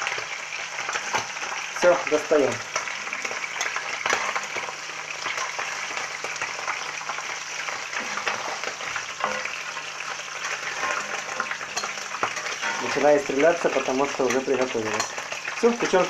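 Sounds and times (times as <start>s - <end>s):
liver sizzling in hot oil: 0.0s - 16.0s
metal spatula clicking and scraping: 2.7s - 4.7s, 7.9s - 13.1s, 14.2s - 15.9s.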